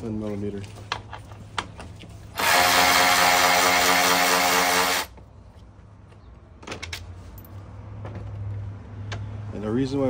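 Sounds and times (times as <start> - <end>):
cordless ratchet whining: 2.4 - 5.1.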